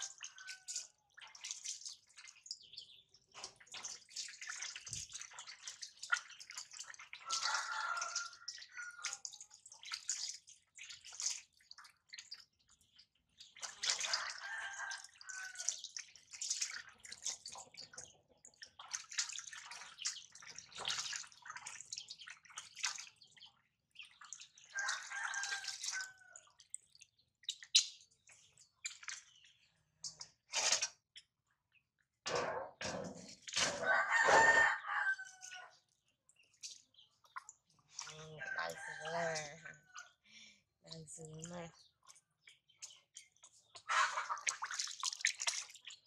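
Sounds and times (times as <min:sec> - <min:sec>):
water splashing into a steel bowl: 0:00.0 - 0:31.4, 0:32.3 - 0:40.2, 0:40.9 - 0:46.0.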